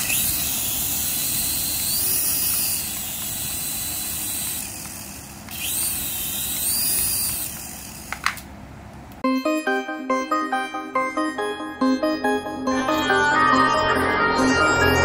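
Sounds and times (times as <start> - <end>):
toy helicopter motors whining: 0.0 - 8.4.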